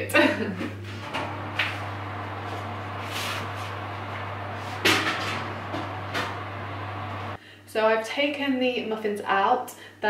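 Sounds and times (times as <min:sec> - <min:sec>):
steady low hum: 0:00.6 - 0:07.4.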